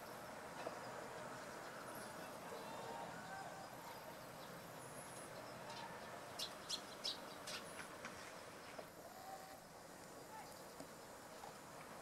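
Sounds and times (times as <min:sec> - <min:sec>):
sparrows chirping: 0:00.0 - 0:07.9
faint background hiss: 0:00.0 - 0:12.0.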